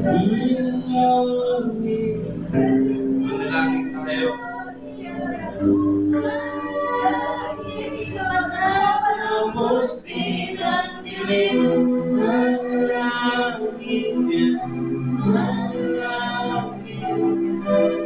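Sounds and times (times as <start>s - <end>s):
guitars and bass: 0.0s - 8.9s
group of voices singing: 0.0s - 18.0s.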